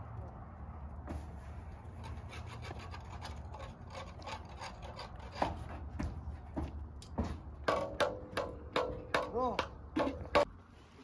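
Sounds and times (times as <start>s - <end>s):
wood knocking and scraping: 2.0s - 10.5s.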